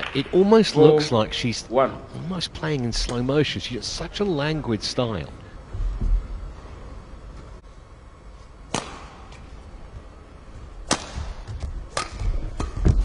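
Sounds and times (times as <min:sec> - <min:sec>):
rackets striking shuttlecock: 0:08.7 - 0:09.5, 0:10.8 - 0:12.9.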